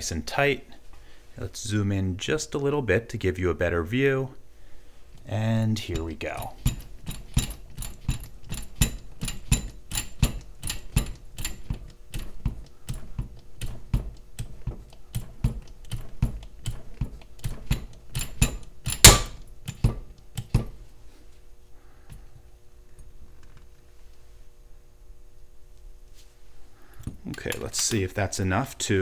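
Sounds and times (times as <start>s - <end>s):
steel shackle cracking: 5.9s - 19.4s
hydraulic pump strokes clicking: 5.9s - 20.6s.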